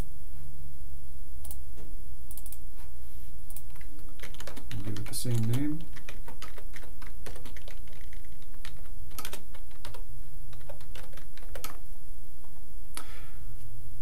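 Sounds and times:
steady low hum: 0.0s - 14.0s
typing on a computer keyboard: 3.5s - 11.8s.

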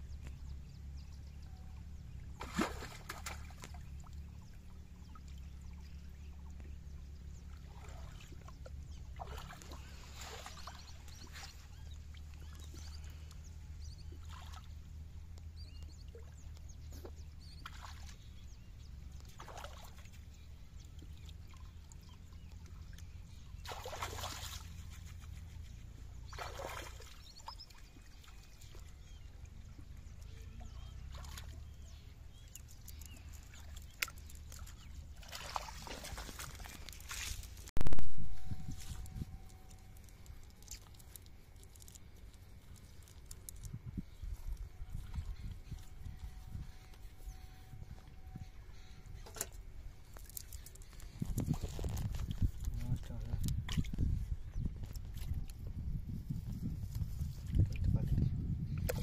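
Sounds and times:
water splashing and trickling: 1.7s - 37.7s, 38.4s - 59.0s
steady low rumble: 24.6s - 59.0s.

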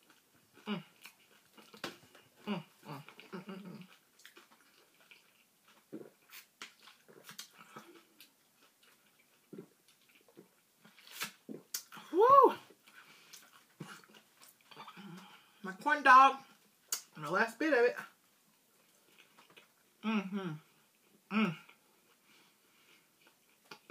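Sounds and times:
person chewing: 0.0s - 15.6s, 16.5s - 17.2s, 18.1s - 23.9s
mouth clicks: 16.9s - 17.2s.

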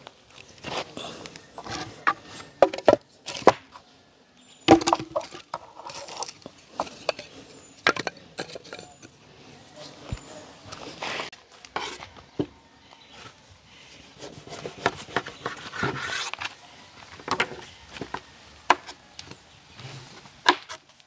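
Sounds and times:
firewood sticks cracking: 20.4s - 20.9s.

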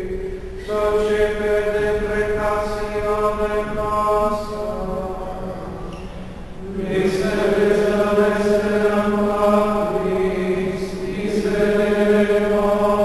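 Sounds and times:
slow chanted singing: 0.0s - 13.0s
steady low drone: 0.0s - 13.0s.

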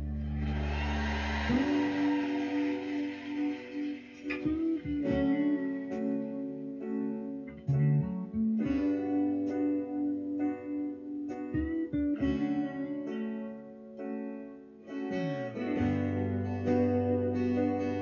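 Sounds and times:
bass line: 0.0s - 13.0s
strummed acoustic guitar: 0.0s - 14.1s, 14.8s - 18.0s.

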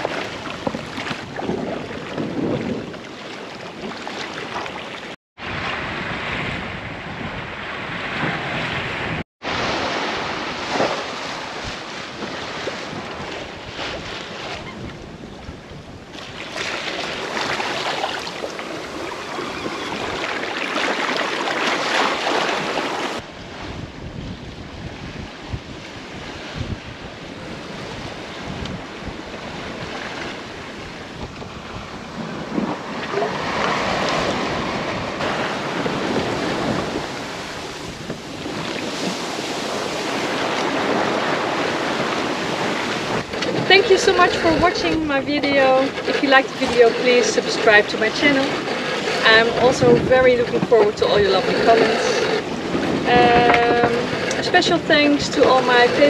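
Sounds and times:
wind buffeting microphone: 0.0s - 4.8s, 5.4s - 56.0s
sea water splashing along hull: 0.0s - 56.0s.

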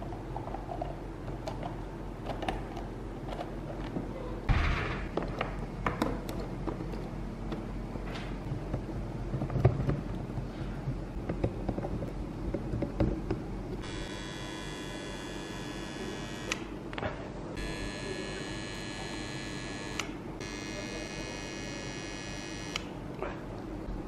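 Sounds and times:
soldering gun buzzing: 13.8s - 16.7s, 17.6s - 22.9s.

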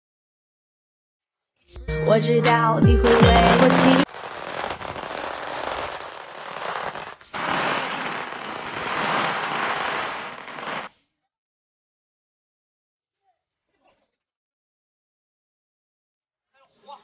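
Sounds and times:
firecrackers crackling: 3.0s - 10.9s.

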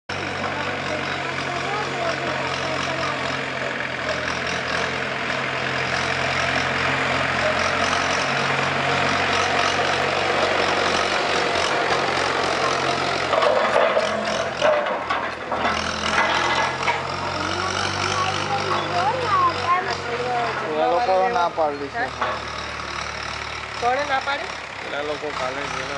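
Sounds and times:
tractor diesel engine running: 0.1s - 25.9s
knocks and rattles: 9.3s - 20.7s, 22.1s - 22.8s.

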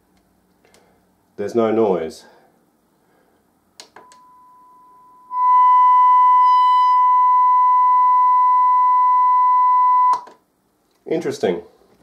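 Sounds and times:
click: 3.8s - 4.2s
steady test tone: 4.0s - 10.2s.

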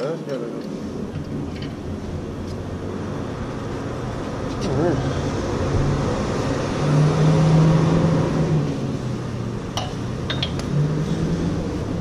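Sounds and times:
light metallic clinks: 9.8s - 10.7s.

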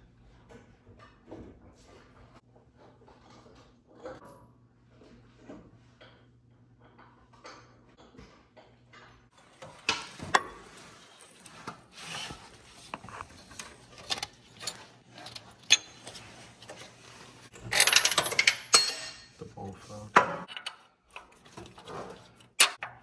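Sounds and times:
rustling and scraping: 9.3s - 17.9s.

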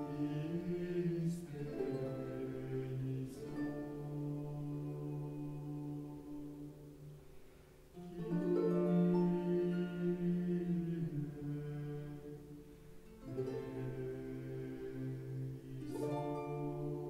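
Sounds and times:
slow held music chords: 0.0s - 17.0s.

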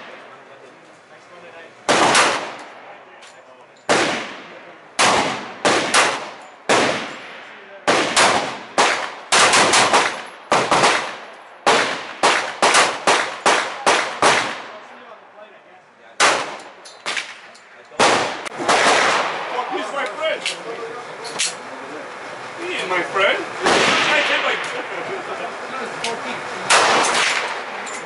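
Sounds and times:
rapid pistol gunfire: 1.9s - 2.6s, 3.9s - 14.8s, 16.2s - 17.3s, 18.0s - 19.5s, 26.7s - 27.8s.

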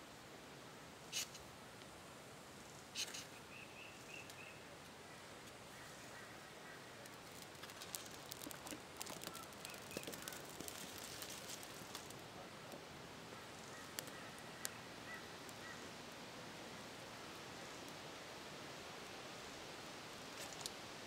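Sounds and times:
faint crackles and ticks: 4.0s - 16.2s, 20.2s - 20.9s.

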